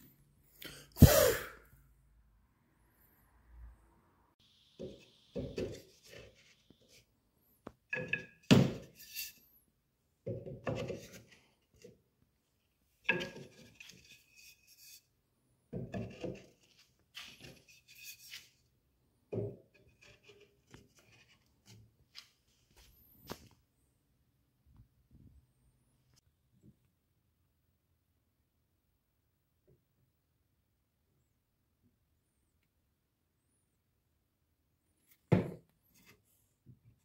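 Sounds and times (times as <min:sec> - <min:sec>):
wooden dowels thunking and rubbing: 0:07.6 - 0:09.4, 0:10.2 - 0:12.0, 0:13.0 - 0:14.9, 0:15.7 - 0:18.6.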